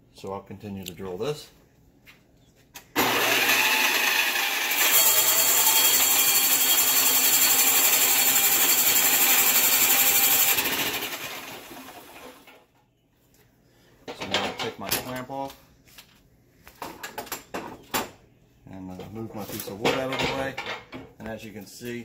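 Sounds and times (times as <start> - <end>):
drill press hole saw cutting wood: 3.0 - 12.4.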